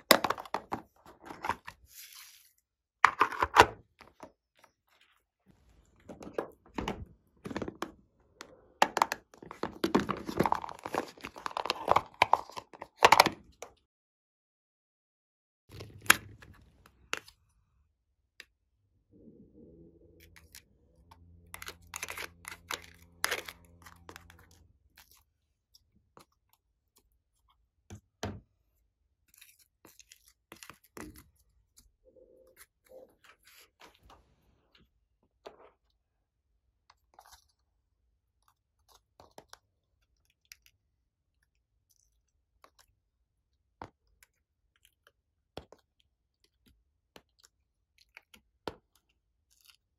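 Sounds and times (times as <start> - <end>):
sticky slime sounds: 20.2 - 28.2.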